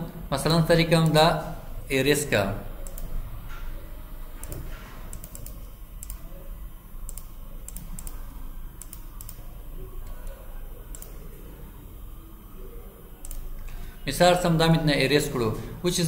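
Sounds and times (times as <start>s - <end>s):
low room hum: 0.0s - 16.0s
keyboard clicks: 2.8s - 3.2s, 4.4s - 6.3s, 7.0s - 8.2s, 8.8s - 9.4s, 10.0s - 11.3s, 13.2s - 13.7s
computer mouse clicks: 2.8s - 3.7s, 4.4s - 6.3s, 7.0s - 11.3s, 13.2s - 13.8s.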